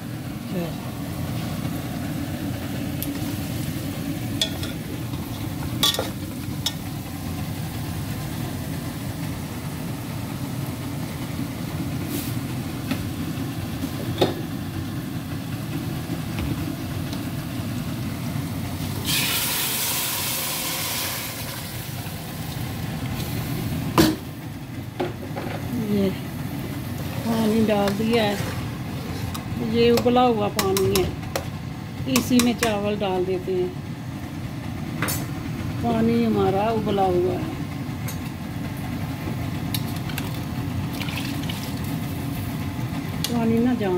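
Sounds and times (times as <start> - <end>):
gas burners roaring: 0.0 - 43.9
metal pots clinking: 4.4 - 4.8.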